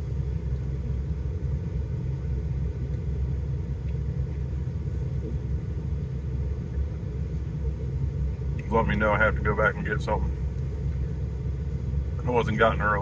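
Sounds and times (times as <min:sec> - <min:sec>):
low rumble inside vehicle cabin: 0:00.0 - 0:13.0.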